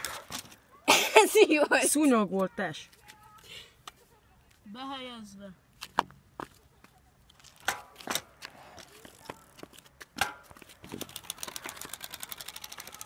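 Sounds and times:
card clattering on bicycle spokes: 7.3 - 13.0.

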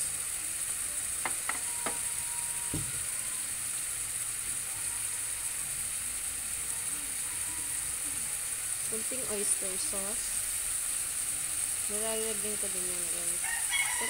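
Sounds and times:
meat sizzling in a frying pan: 0.0 - 14.0
soft knock: 2.7 - 3.0.

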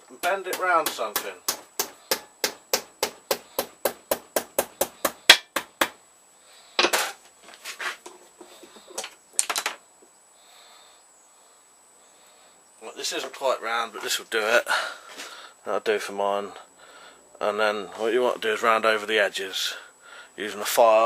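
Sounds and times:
hammer striking metal: 0.2 - 5.9.

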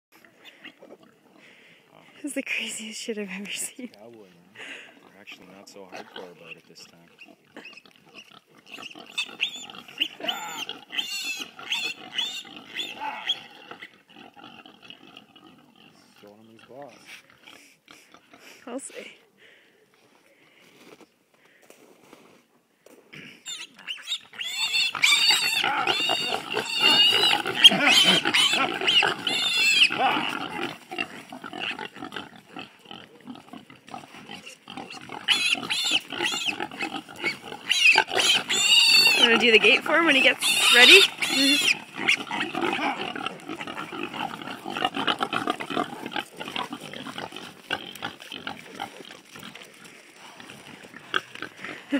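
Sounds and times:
piglet squealing: 7.2 - 13.9, 23.4 - 30.7, 34.3 - 45.8.

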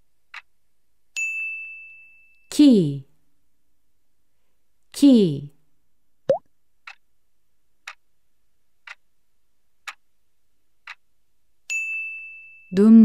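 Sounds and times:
clock ticking: 8.8 - 9.0, 9.8 - 10.0, 10.8 - 11.0.

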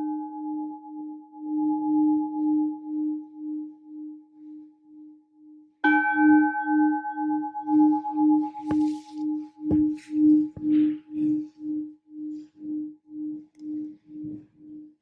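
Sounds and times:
singing bowl ringing: 5.8 - 15.0.

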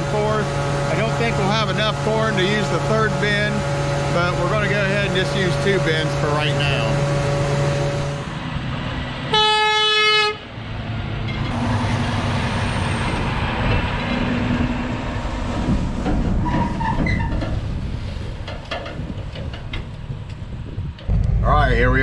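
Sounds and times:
diesel engine rumbling: 0.0 - 22.0
truck horn: 9.3 - 10.5.

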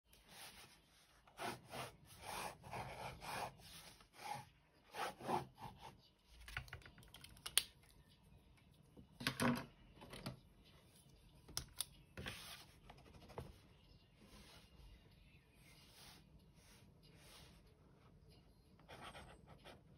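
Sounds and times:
pen scratching on paper: 1.4 - 5.9.

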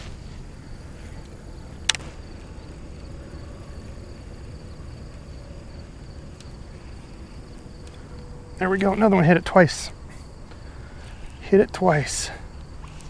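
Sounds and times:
crickets chirring: 0.0 - 13.0
low steady rumble: 0.0 - 13.0
sharp click: 1.8 - 2.2.

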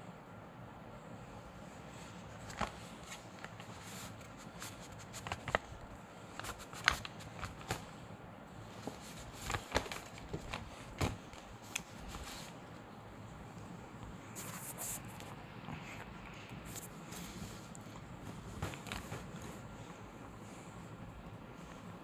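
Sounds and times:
paper bag rustling: 8.7 - 12.6.

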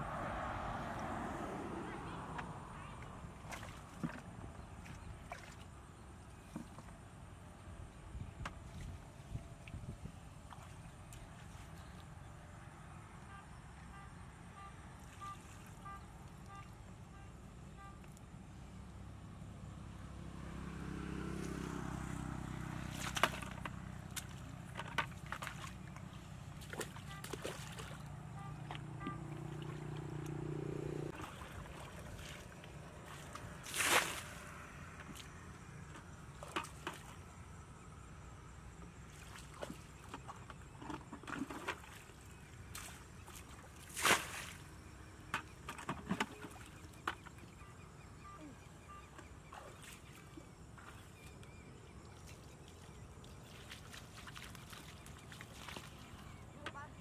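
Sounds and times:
water sloshing and splashing: 0.0 - 18.3, 21.0 - 57.0
water splashing from bucket: 22.7 - 35.3, 39.1 - 44.8, 53.2 - 56.5.

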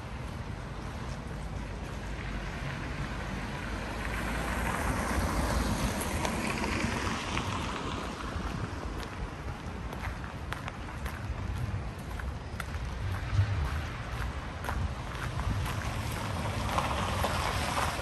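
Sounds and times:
vehicle passing by: 12.9 - 18.0.

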